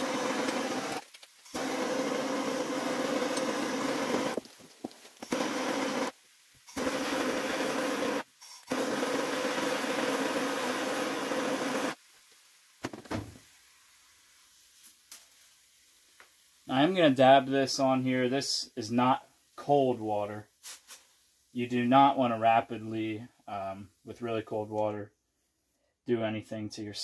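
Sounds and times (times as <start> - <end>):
gas torch hissing: 0.0 - 12.0.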